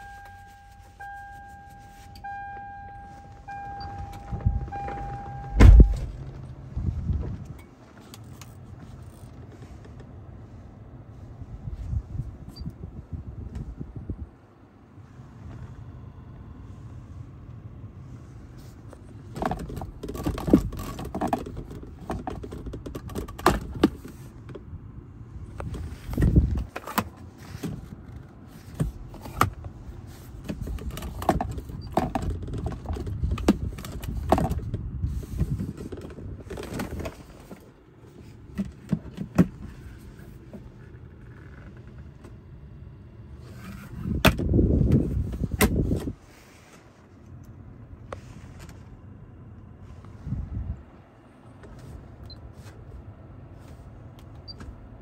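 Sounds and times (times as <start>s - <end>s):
hands handling car controls: 0.0s - 10.2s, 18.6s - 24.7s, 25.4s - 42.4s, 43.5s - 46.2s
low steady rumble: 0.0s - 55.0s
loud thump: 5.3s - 6.2s.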